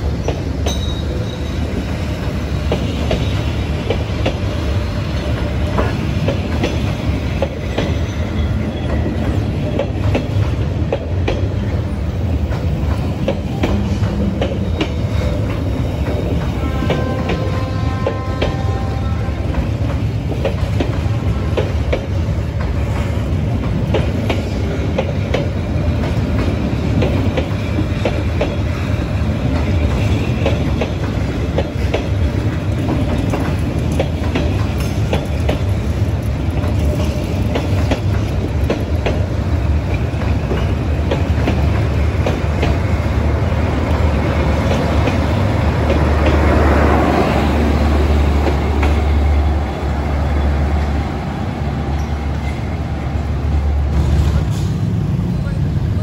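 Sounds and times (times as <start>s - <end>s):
train coaches rumbling past: 0.0s - 56.0s
wheels clicking over rail joints: 12.3s - 43.0s.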